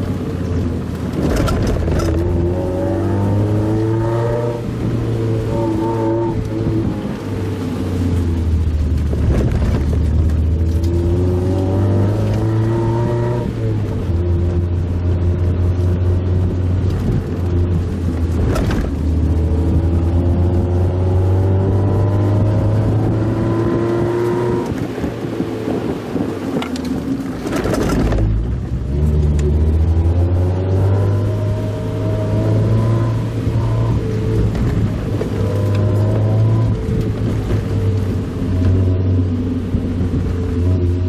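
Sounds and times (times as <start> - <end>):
car engine revving: 0.0 - 41.0
road rumble: 0.0 - 41.0
thumps from road: 18.3 - 19.0.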